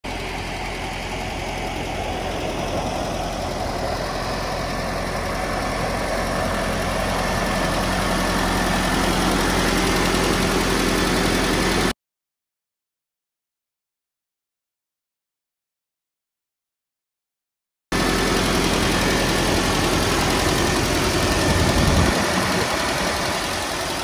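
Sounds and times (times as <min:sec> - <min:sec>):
pickup engine idling: 0:00.0 - 0:11.9, 0:18.0 - 0:24.0.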